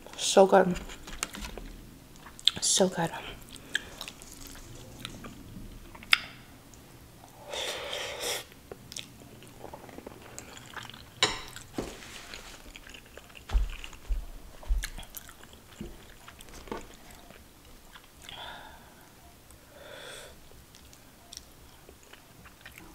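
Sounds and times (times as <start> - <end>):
close chewing with mouth clicks: 2.2 - 2.6, 3.4 - 6.2, 8.8 - 11.7, 12.6 - 18.4, 20.7 - 22.9
low thumps: 13.5 - 15.1.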